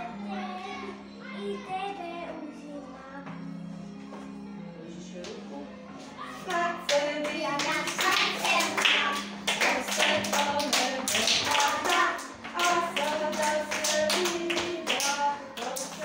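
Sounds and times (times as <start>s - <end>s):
children's song with music: 0.0s - 16.0s
hands clapping in rhythm: 6.5s - 16.0s.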